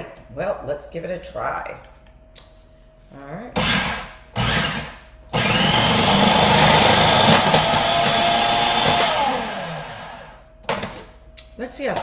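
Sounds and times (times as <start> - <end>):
food processor motor running: 3.6 - 10.4.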